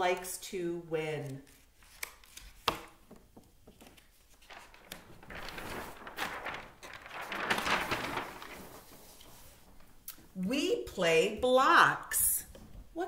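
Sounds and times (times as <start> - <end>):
paper sheet rustling: 1.2 - 10.0.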